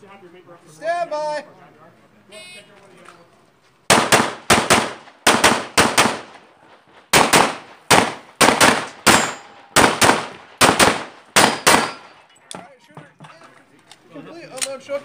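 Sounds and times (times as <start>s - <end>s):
pistol shots in quick pairs: 3.9s - 6.4s, 7.1s - 12.2s.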